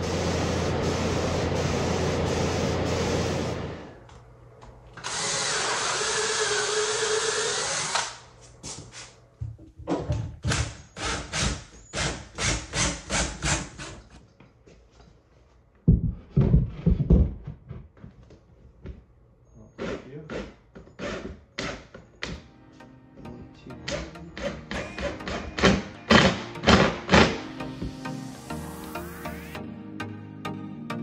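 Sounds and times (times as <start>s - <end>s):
cordless drill running: 5.0s - 8.2s.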